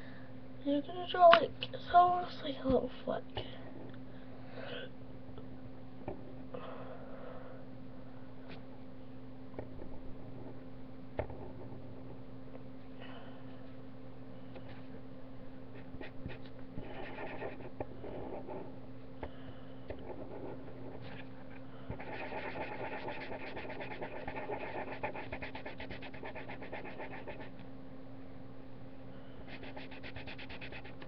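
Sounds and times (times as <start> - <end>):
low electrical hum: 0.0 - 31.0
marker scratching on paper: 15.8 - 18.7, 20.0 - 21.3, 21.9 - 27.5, 29.5 - 31.0.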